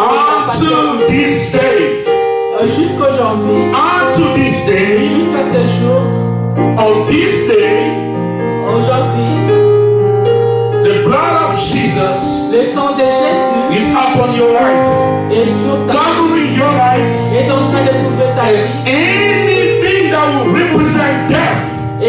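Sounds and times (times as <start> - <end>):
person singing: 0.0 - 1.9
keyboard sustained chords: 0.0 - 22.0.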